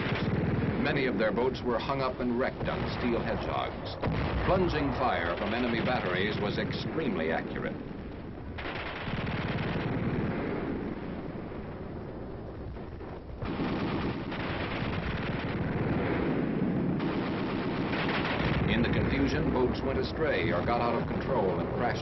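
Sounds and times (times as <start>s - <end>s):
artillery fire: 0.0s - 22.0s
dense gunfire: 0.0s - 22.0s.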